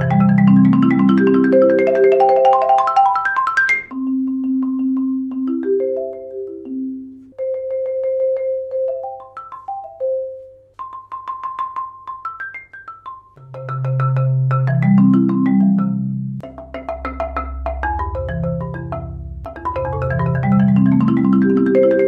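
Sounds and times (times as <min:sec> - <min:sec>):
marimba played with mallets: 0:00.0 - 0:22.0.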